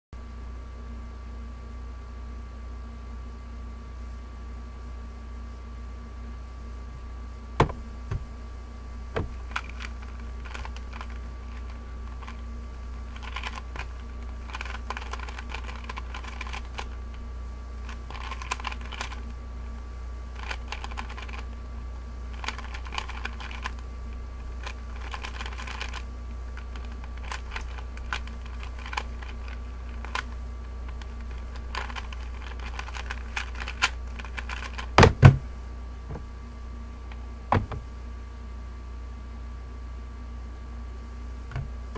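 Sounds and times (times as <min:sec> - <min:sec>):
steady low hum: 0:00.2 - 0:41.9
loud knock: 0:07.6 - 0:08.2
plastic puzzle cube clicking: 0:09.5 - 0:12.4, 0:13.1 - 0:13.9, 0:14.5 - 0:16.9, 0:18.1 - 0:19.2, 0:20.4 - 0:21.4, 0:22.4 - 0:23.8, 0:24.6 - 0:26.0, 0:26.6 - 0:30.3, 0:31.0 - 0:34.9.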